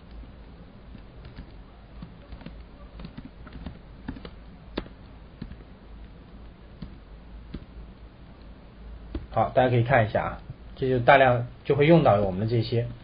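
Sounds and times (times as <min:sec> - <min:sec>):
low steady hum: 0:00.0 - 0:13.0
keyboard keys tapping: 0:00.9 - 0:07.8.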